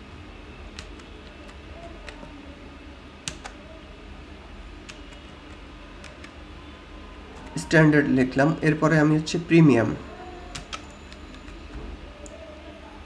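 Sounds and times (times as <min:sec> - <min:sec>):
faint low hum: 0:00.0 - 0:13.0
keyboard keys clicking: 0:00.7 - 0:02.4, 0:03.3 - 0:03.6, 0:04.8 - 0:06.4, 0:10.5 - 0:12.4.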